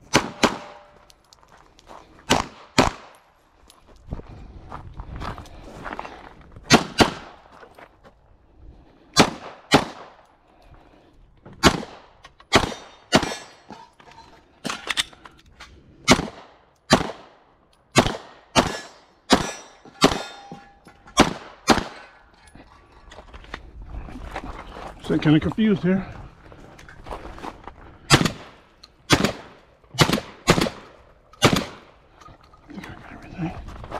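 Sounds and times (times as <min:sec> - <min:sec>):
gunshots: 0:00.0 - 0:00.9, 0:02.3 - 0:03.1, 0:06.7 - 0:07.4, 0:09.2 - 0:10.2, 0:11.6 - 0:13.5, 0:16.0 - 0:20.5, 0:21.2 - 0:22.1, 0:28.1 - 0:32.0
steel targets ringing: 0:18.8 - 0:21.0.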